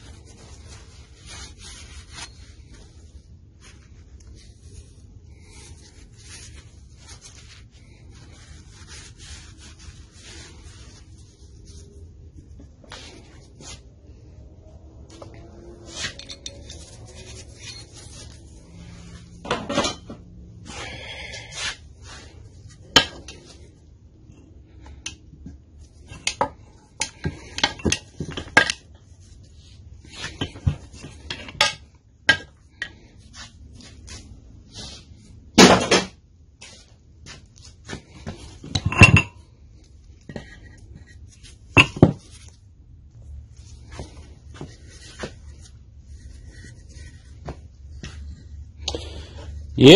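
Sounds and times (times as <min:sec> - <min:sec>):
metal tools clinking on workbench: 0:16.0 - 0:18.0.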